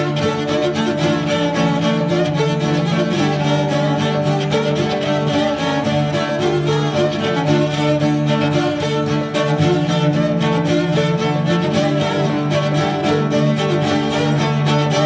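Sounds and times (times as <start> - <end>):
held string chords: 0.0 - 15.0.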